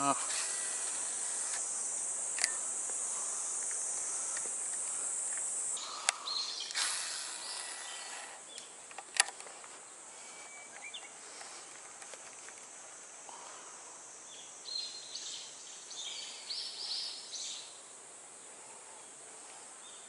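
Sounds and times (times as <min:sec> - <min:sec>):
cicadas buzzing: 0:00.0 - 0:20.0
sharp clicks: 0:02.3 - 0:02.6, 0:08.5 - 0:09.5.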